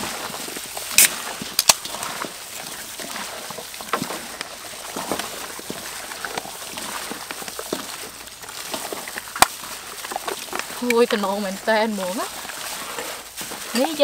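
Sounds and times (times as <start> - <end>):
hands squelching in marinade: 0.0 - 14.0.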